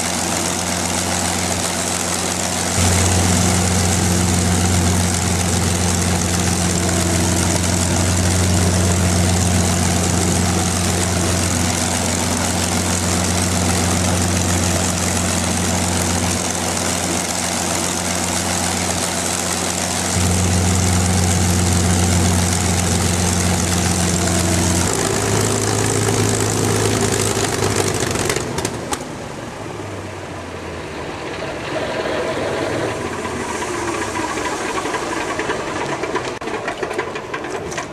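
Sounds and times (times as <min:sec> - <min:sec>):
aircraft engine idling: 0:00.0 - 0:29.1.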